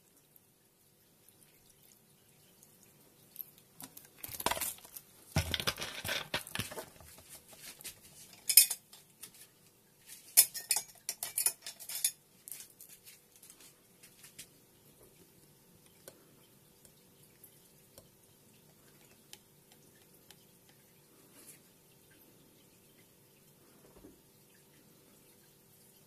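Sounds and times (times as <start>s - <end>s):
glassware and utensils clinking: 8.2s - 9.0s, 10.1s - 13.1s.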